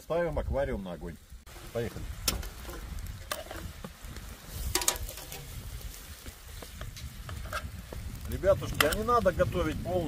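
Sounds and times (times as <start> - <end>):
vegetables frying: 0.0 - 10.0
metal utensil scraping a pan: 2.2 - 3.8, 4.5 - 5.6, 7.0 - 7.8.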